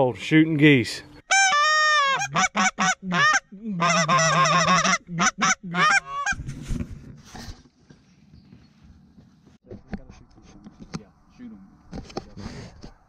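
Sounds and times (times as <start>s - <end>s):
goose honking and clucking: 1.3s - 6.4s.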